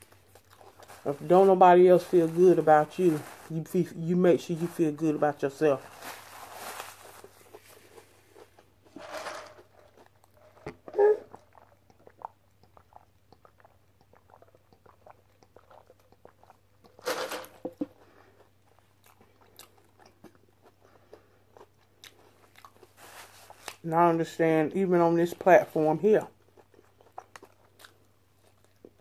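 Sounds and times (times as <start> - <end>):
close chewing with wet mouth clicks: 0.0 - 0.9, 9.7 - 17.0, 17.7 - 23.0, 26.3 - 29.0.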